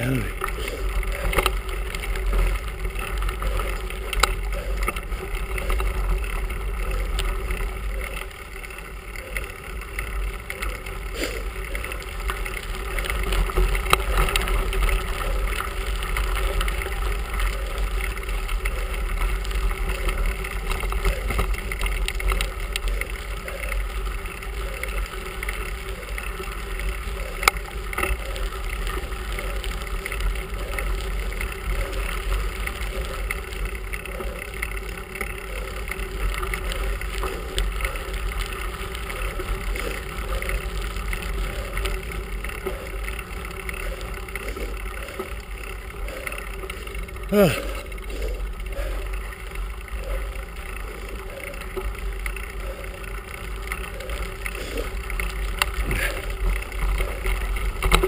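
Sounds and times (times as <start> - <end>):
bike clicking over stones: 0.0 - 58.0
tyres rumbling on gravel: 0.0 - 58.0.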